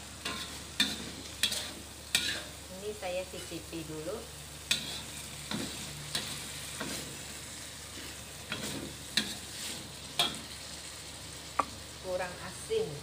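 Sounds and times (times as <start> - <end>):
low sizzle: 0.0 - 13.0
metal spatula scraping a wok: 0.2 - 2.6, 4.7 - 10.4.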